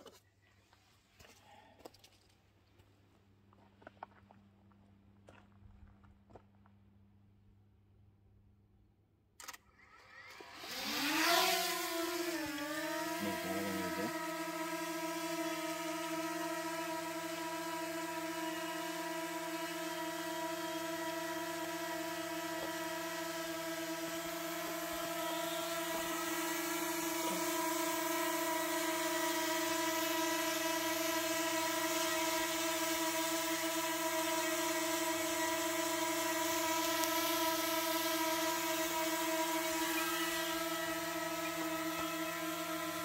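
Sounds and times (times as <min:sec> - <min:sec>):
drone propellers buzzing: 0:10.2 - 0:43.0.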